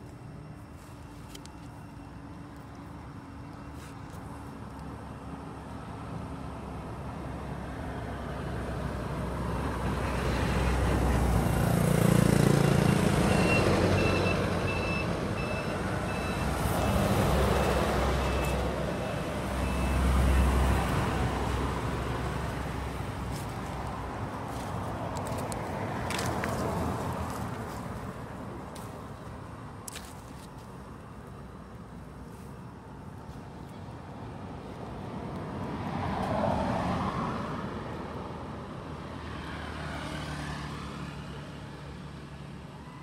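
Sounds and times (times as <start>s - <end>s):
heavy vehicle engine rumbling: 12.6s - 30.0s
reversing alarm beeping: 12.8s - 20.7s.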